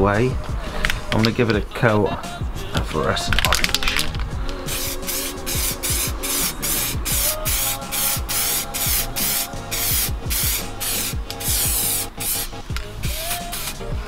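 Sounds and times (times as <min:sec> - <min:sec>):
background music with a beat: 0:00.0 - 0:14.0
spray paint can hissing: 0:04.7 - 0:14.0.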